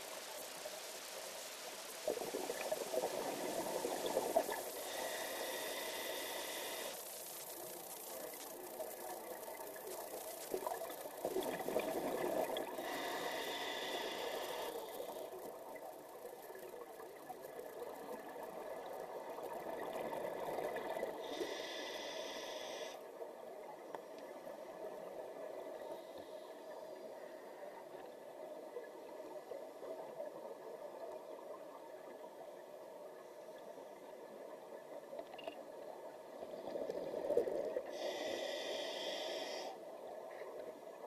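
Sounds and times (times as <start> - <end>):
hissing regulator inhalation: 4.7 - 7.0, 12.6 - 15.4, 21.1 - 23.0, 37.9 - 39.8.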